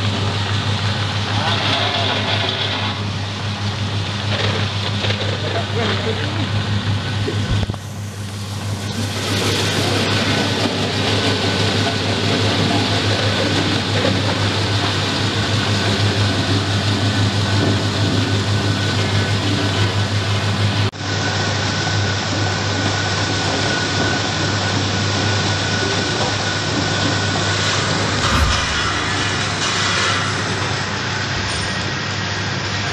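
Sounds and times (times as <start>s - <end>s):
electric motor low hum: 28.0s - 29.6s.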